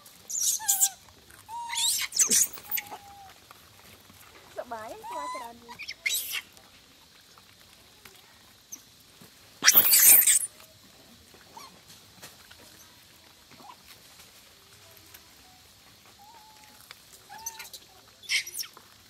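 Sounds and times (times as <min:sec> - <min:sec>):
monkeys feeding: 0:00.0 - 0:19.0
monkey harsh screech: 0:00.3 - 0:03.2, 0:05.0 - 0:06.5, 0:09.6 - 0:10.5, 0:17.3 - 0:18.8.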